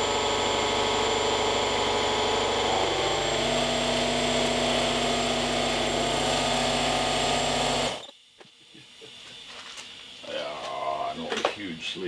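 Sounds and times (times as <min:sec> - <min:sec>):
air compressor pump running: 0:00.0 - 0:08.1.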